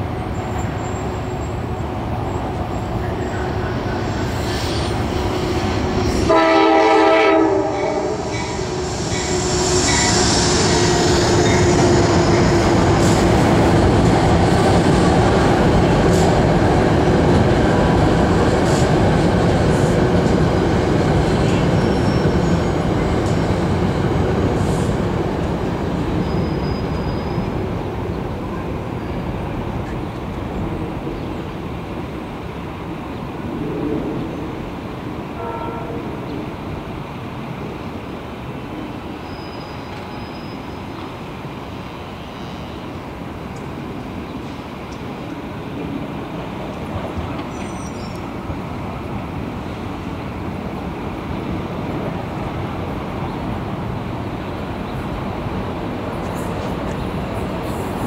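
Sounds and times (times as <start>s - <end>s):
train wheels rumbling and clacking: 0.0s - 31.8s
train horn blast: 6.1s - 12.1s, 35.4s - 36.2s.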